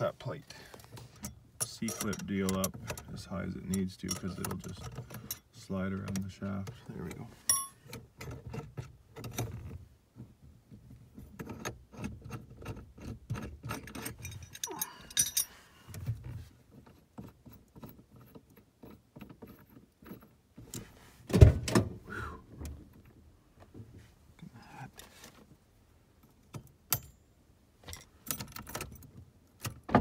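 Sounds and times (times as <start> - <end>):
tool clicks and metal rattles: 1.2 - 6.3
keys jangling: 13.9 - 15.6.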